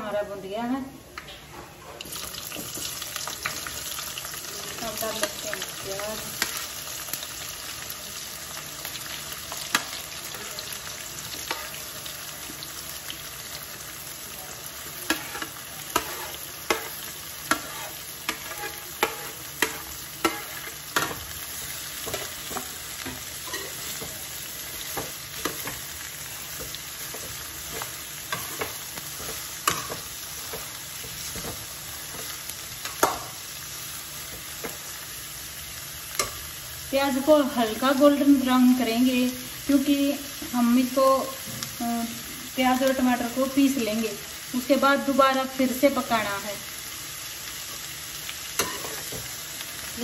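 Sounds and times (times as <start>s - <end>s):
onions sizzling in a pan: 1.7s - 50.0s
metal ladle scraping a pan: 15.1s - 21.2s.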